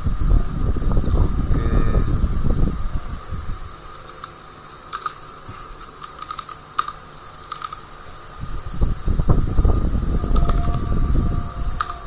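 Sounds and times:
low rumbling noise: 0.0s - 12.0s
keyboard keystrokes: 6.0s - 7.8s.

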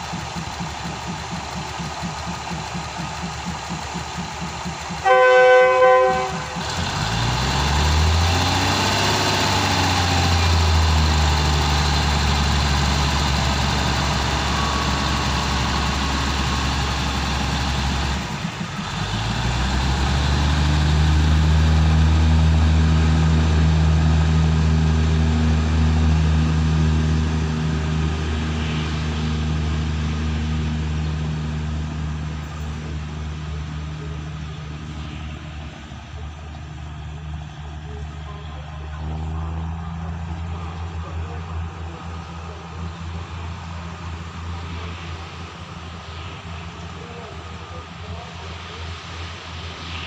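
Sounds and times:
train engine winding up: 0.0s - 38.2s
diesel engine running: 0.0s - 50.0s.

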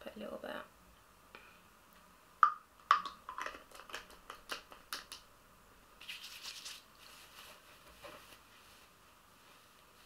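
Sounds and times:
hands rubbing through hair: 6.0s - 10.0s.

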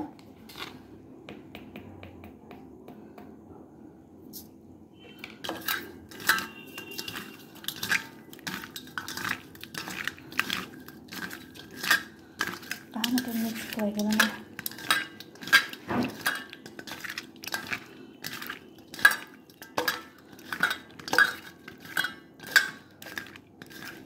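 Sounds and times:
fish scraping in metal bowl: 5.1s - 24.0s.

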